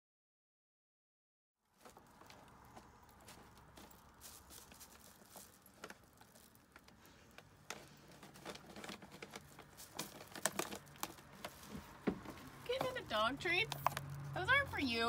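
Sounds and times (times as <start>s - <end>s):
cat chewing treats: 1.8s - 12.7s.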